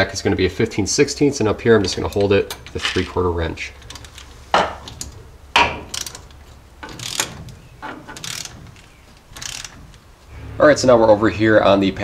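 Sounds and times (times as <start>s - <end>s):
socket ratchet clicking: 3.8s - 10.2s.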